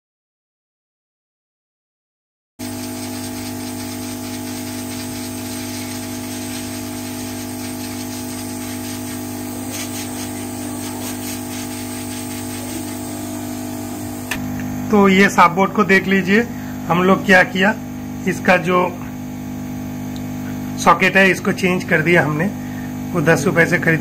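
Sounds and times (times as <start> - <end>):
hot air blower hissing: 2.6 - 24.0
low fan hum: 6.5 - 19.1.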